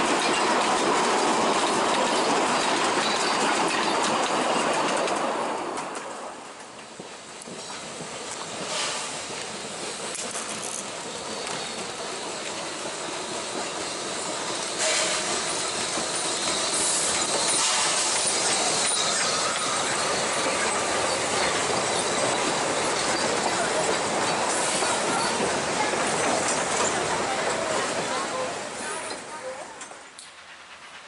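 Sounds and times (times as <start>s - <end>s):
steam locomotive passing: 0.0s - 31.0s
wheels clicking over rail joints: 0.0s - 31.0s
steam hissing: 6.8s - 29.3s
wheels squealing on curve: 11.0s - 25.4s.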